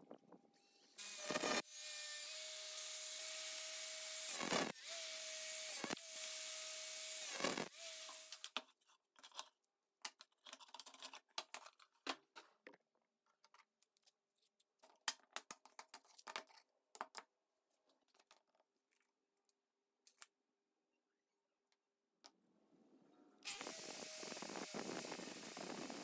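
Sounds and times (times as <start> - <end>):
angle grinder whine: 23.5 - 26.0.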